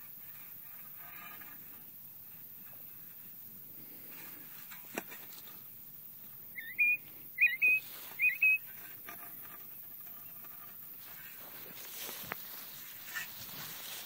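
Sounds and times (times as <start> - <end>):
quail whistling calls: 6.5 - 8.7.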